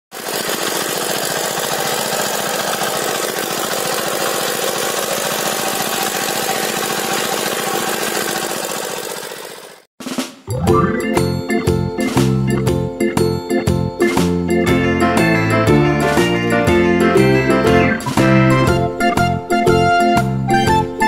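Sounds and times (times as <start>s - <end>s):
cultivator engine running: 0.1s - 9.9s.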